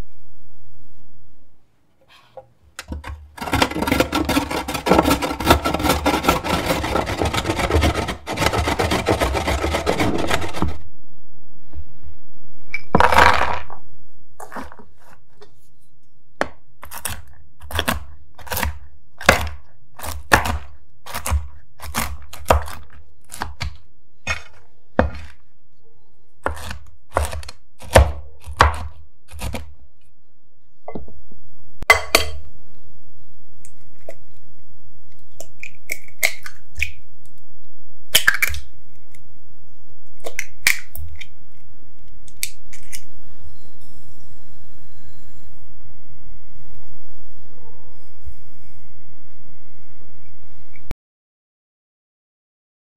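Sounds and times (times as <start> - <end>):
knife chopping on wooden board: 3.0 - 10.8, 26.4 - 29.6
carrot grated on metal grater: 3.4 - 10.8
short scrape: 3.4 - 10.8.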